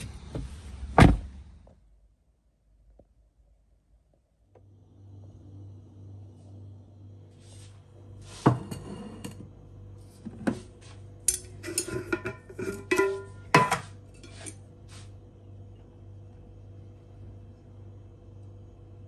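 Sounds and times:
glass jar lid clinking and scraping: 0:11.3 - 0:14.6.

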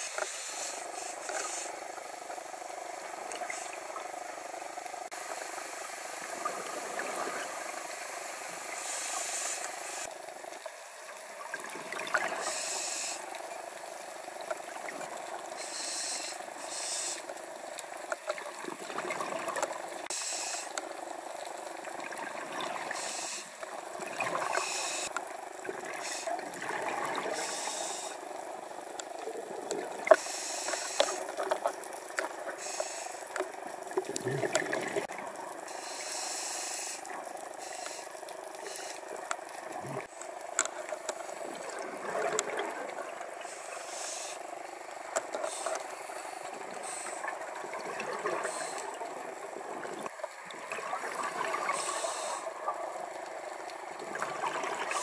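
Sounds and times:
regulator air hiss: 0:00.0 - 0:10.1, 0:12.3 - 0:13.4, 0:15.5 - 0:17.3, 0:20.1 - 0:20.8, 0:22.9 - 0:23.7, 0:24.4 - 0:25.1, 0:25.9 - 0:26.4, 0:27.3 - 0:28.5, 0:30.1 - 0:31.4, 0:32.5 - 0:33.4, 0:35.6 - 0:39.2, 0:43.4 - 0:47.5, 0:48.3 - 0:48.9, 0:51.6 - 0:52.6
underwater noise: 0:00.0 - 0:55.0
exhaled bubbles rushing: 0:25.6 - 0:27.5, 0:34.0 - 0:35.4, 0:41.4 - 0:43.3, 0:47.3 - 0:52.0, 0:53.9 - 0:55.0
small clicks: 0:40.2 - 0:41.3.

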